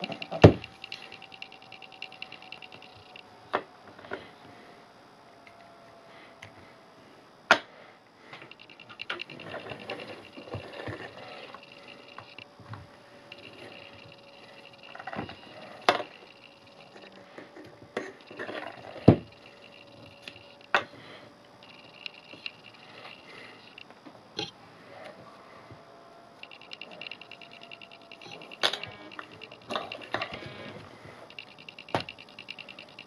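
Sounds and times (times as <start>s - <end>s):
faint steady tone: 0.0s - 33.0s.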